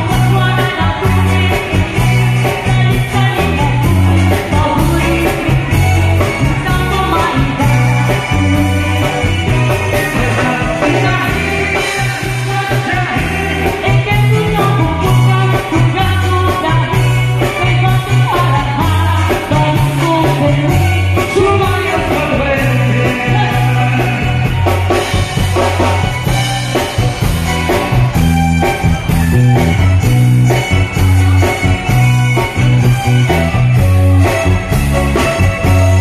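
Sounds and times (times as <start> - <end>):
person singing: 0.0 - 26.1
electric bass line: 0.0 - 36.0
live band playing dance music: 0.0 - 36.0.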